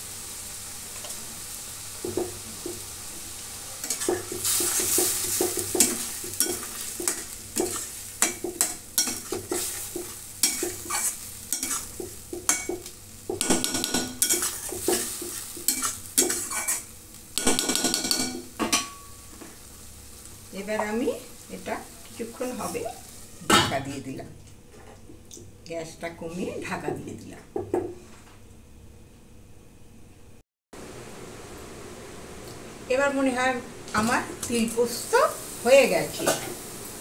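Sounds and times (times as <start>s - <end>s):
frying hiss: 0.0s - 24.4s, 30.8s - 37.0s
spatula scraping metal pan: 3.8s - 12.7s, 13.5s - 16.9s.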